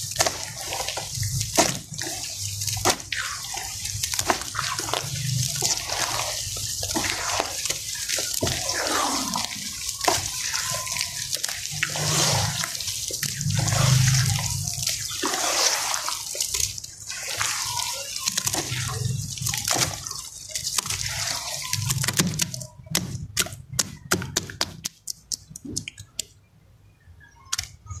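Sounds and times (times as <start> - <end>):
hands patting wet surface: 0.0 - 14.5
water sloshing: 0.0 - 24.6
hands squelching wet mud: 0.0 - 26.0.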